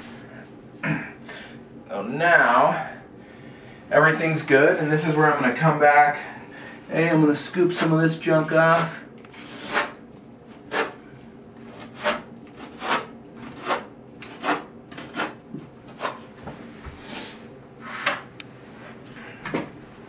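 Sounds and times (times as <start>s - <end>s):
trowel scraping mortar: 8.7s - 10.0s, 11.7s - 16.2s.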